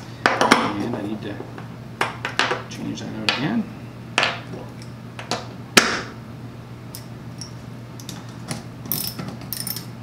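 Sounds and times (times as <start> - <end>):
metal parts clinking on wood: 8.9 - 10.0.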